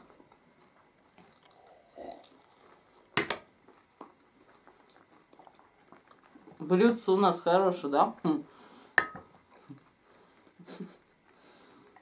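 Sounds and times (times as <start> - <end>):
quiet eating sounds: 0.0 - 12.0
glass mug clinking on saucer: 9.0 - 9.2.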